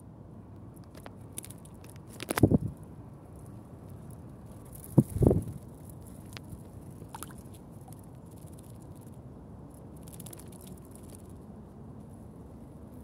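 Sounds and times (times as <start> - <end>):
wing flutter: 10.0 - 11.4.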